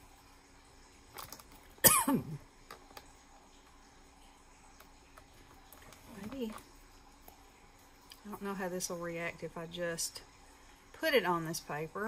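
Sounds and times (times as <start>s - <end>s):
woman's cough-like throat sound: 1.8s - 2.4s.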